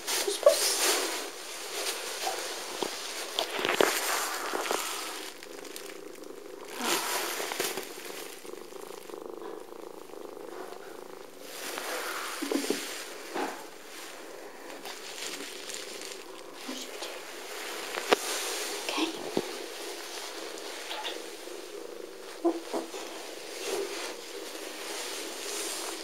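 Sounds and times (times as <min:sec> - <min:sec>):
cat purring: 0:00.0 - 0:26.0
fur rustling against microphone: 0:00.0 - 0:26.0.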